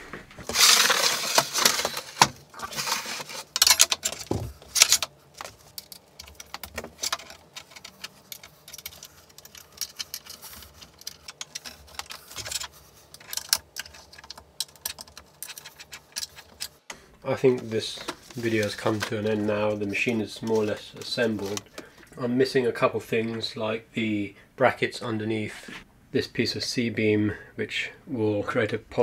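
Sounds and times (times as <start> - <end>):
metal parts clicking and rattling: 0.4 - 16.9.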